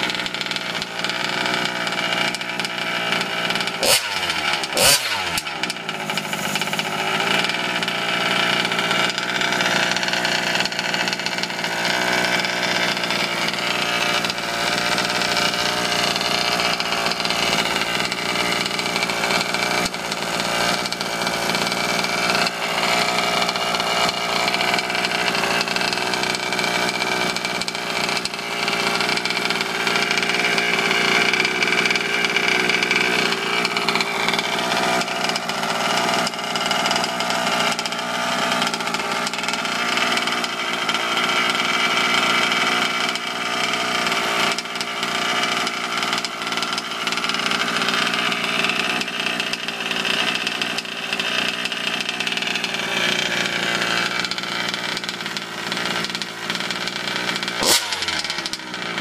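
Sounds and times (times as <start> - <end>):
two-stroke engine running: 0.0 - 59.0.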